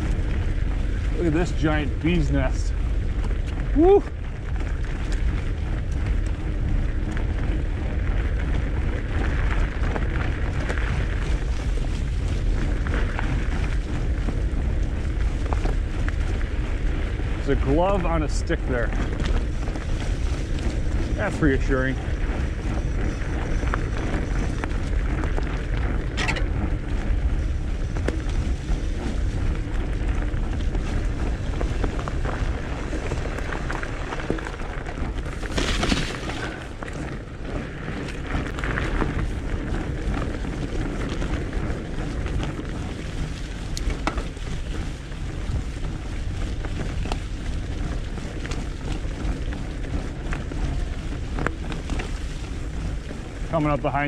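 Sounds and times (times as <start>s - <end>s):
bike tyres rolling over leaves: 0.0s - 54.0s
wind rumble on microphone: 0.0s - 54.0s.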